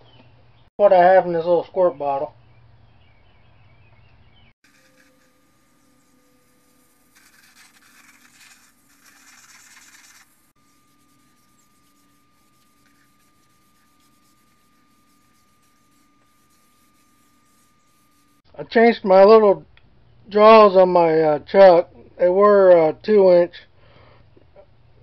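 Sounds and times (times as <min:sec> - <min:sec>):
rag rubbing spinning wood: 0:04.6 - 0:18.4
faint steady tone: 0:04.7 - 0:18.4.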